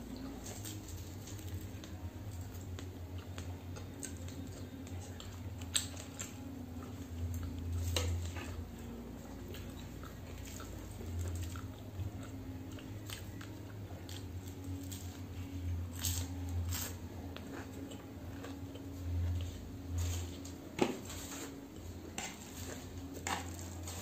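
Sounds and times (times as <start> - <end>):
steady low hum: 0.0 - 24.0
crunchy chewing: 0.1 - 24.0.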